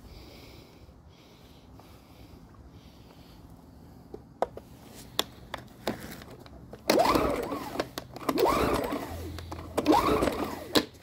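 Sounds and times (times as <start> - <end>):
engine turning over without starting: 6.7 - 11.0.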